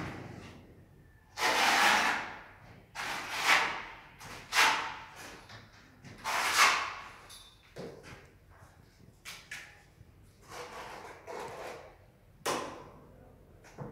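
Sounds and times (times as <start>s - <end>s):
trowel scraping adhesive on wall: 1.3s - 5.5s, 6.1s - 7.2s, 10.4s - 12.0s.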